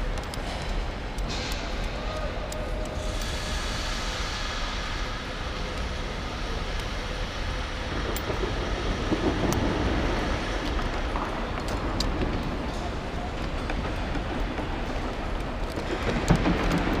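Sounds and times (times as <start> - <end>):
light metallic clicks: 0.0 - 4.0.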